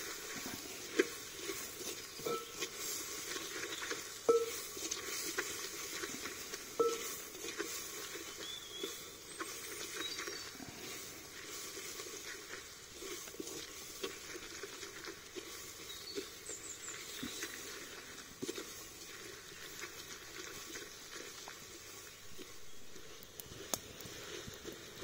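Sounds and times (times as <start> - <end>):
onions sizzling in a pot: 0.0 - 14.4
wooden spatula scraping a pot: 0.0 - 21.5.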